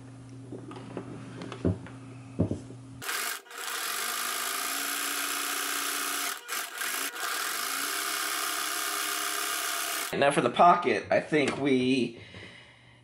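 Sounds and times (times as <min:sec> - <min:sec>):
sewing machine running: 0:03.0 - 0:10.2.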